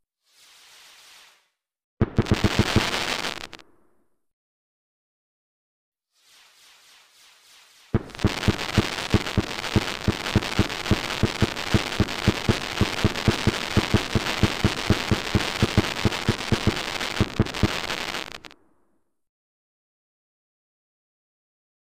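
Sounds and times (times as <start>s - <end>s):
fireworks crackling and booming: 2.0s - 3.8s, 6.2s - 18.6s.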